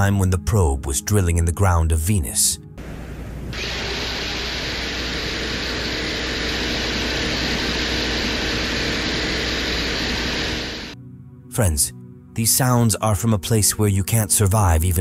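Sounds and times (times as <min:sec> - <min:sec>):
low hum: 0:02.8 - 0:11.0
mechanical drilling noise: 0:03.5 - 0:11.0.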